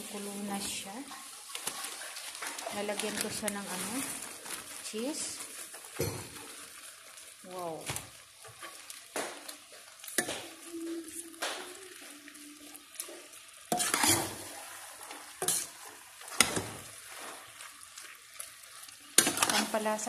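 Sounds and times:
utensil scraping and knocking pot: 13.8 - 14.5, 15.4 - 16.8.

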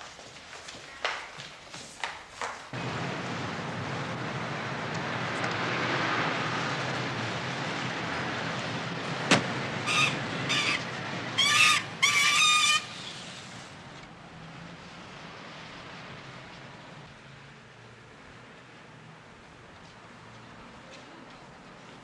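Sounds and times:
city street traffic: 0.0 - 22.0
high-pitched horn toots: 11.4 - 12.9.

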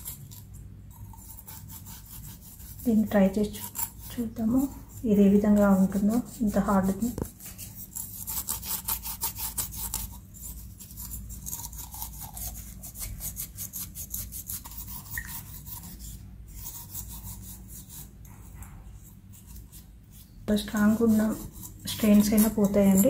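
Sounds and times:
cloth scrubbing metal vase: 0.0 - 23.0.

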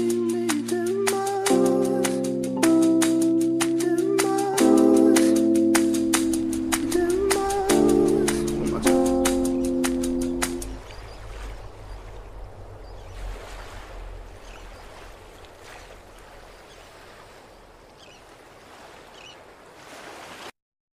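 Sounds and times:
song with held notes: 0.0 - 10.8
rushing surf-like noise: 2.9 - 17.6.

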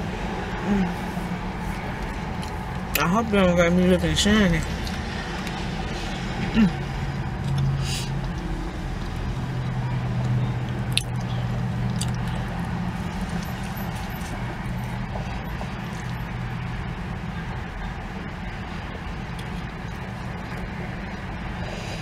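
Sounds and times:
low car cabin hum: 0.0 - 22.0
person biting and chewing: 10.2 - 12.4.

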